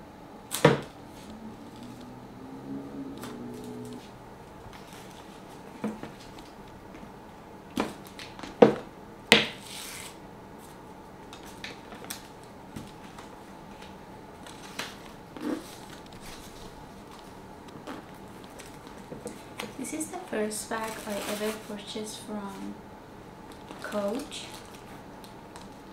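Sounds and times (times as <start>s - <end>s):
tissue paper rustling: 20.7s - 21.8s.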